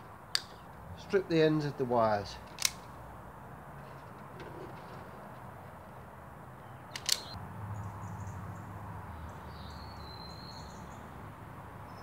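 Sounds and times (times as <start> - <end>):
wire strippers clicking shut: 6.9 - 7.4.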